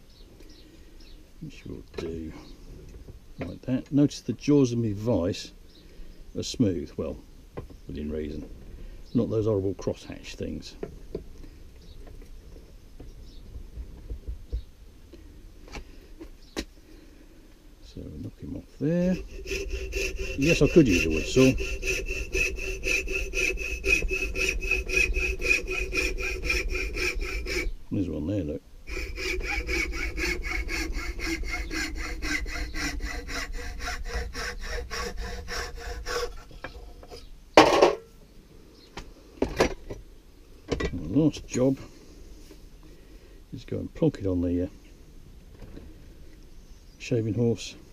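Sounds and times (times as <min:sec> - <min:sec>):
hacksaw cutting wood: 0:18.8 - 0:27.7, 0:28.9 - 0:36.8.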